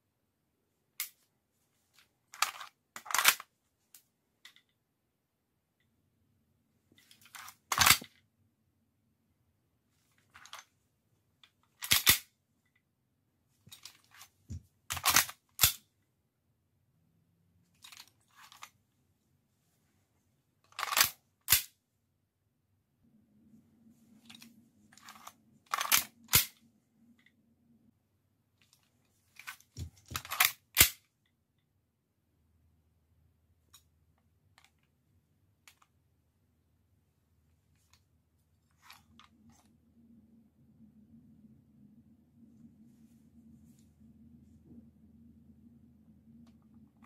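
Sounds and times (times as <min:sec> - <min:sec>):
pistol magazine and slide clacks: 0:11.8 - 0:12.3, 0:14.9 - 0:15.8, 0:20.8 - 0:21.7, 0:25.1 - 0:26.6, 0:30.2 - 0:31.0.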